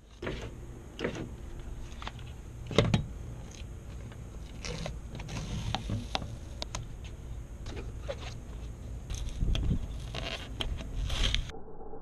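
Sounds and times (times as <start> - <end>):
low rumble: 10.9 - 12.0.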